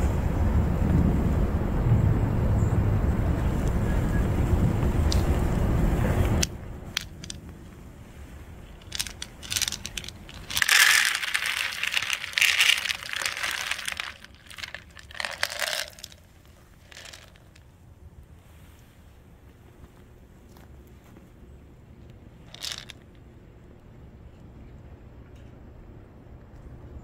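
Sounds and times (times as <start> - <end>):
wind rumble on microphone: 0.0 - 10.4
cat kibble rattling into plastic tray: 8.8 - 17.6, 22.5 - 23.0.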